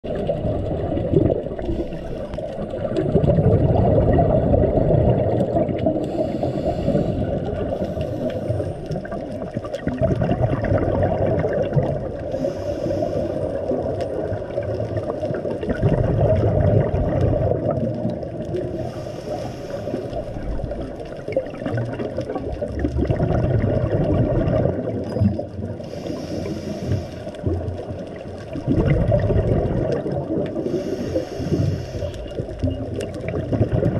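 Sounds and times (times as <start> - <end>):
muffled underwater rumble: 0.0 - 33.9
hissing: 12.2 - 14.0, 18.7 - 20.8, 25.8 - 27.4, 30.6 - 32.7.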